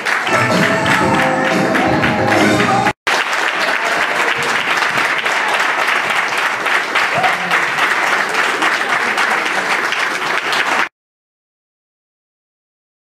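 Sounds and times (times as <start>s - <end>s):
audience applauding: 0.0s - 10.9s
recorded music: 0.1s - 3.0s.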